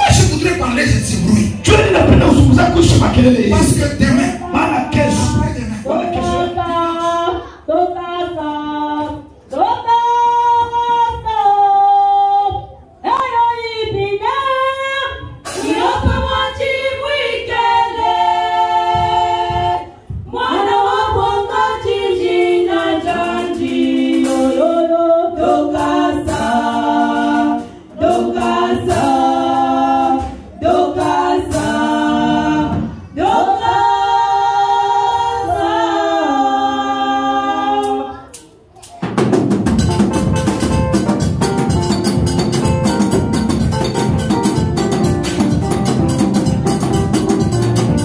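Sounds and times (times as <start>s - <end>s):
women singing a cappella: 4.4s - 38.3s.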